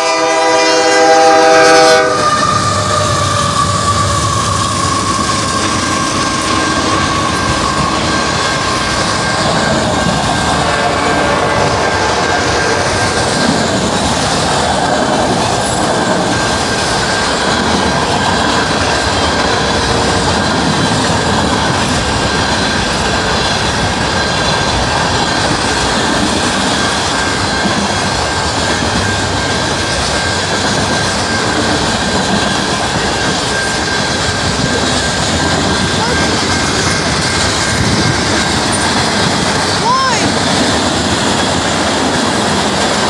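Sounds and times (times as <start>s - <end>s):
steel wheels rumbling on rails: 0.0s - 43.0s
high-pitched tone: 33.4s - 39.0s.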